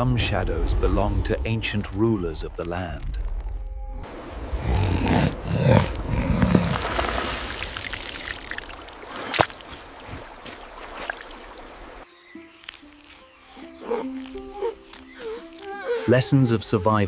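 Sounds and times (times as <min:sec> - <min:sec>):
low animal growling: 0:03.8 - 0:06.8
water trickling and dripping: 0:07.2 - 0:12.0.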